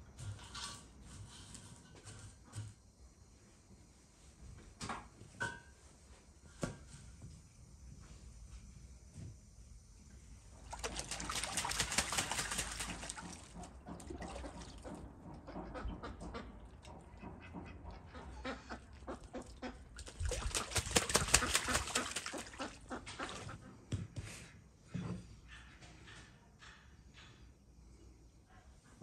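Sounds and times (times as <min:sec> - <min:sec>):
duck splashing water: 0:10.5 - 0:23.7
farmyard fowl sounds: 0:13.6 - 0:19.9.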